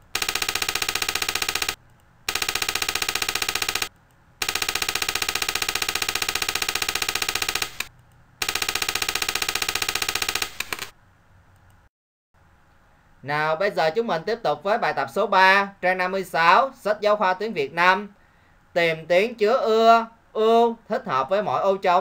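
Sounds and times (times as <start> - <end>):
buzzy rattle of rapid clicks: 0.0 - 11.0.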